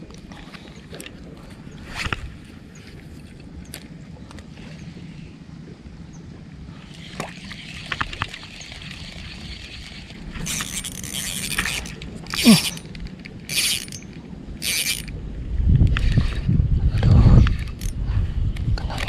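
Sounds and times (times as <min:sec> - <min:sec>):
fishing reel cranking: 0:06.9 - 0:15.1, 0:17.5 - 0:18.0.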